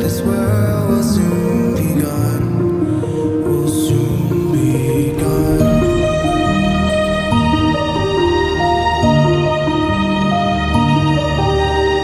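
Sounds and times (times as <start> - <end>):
calm instrumental music: 0.0 - 12.0.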